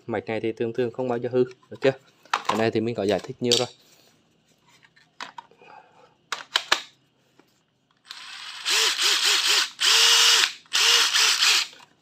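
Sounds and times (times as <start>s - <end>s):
impact driver motor whine: 8.1s - 11.8s.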